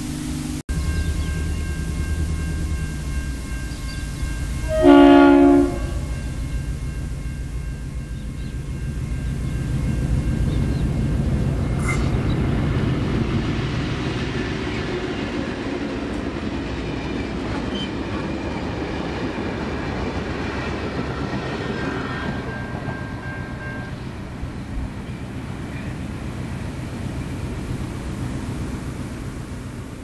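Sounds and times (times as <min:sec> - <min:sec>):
locomotive engine rumble: 0:00.0 - 0:30.0
train carriages rolling on rails: 0:00.0 - 0:30.0.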